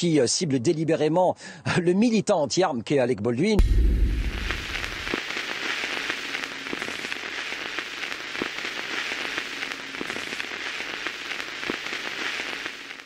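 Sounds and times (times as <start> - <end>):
steady crackling hiss: 3.6 - 13.0.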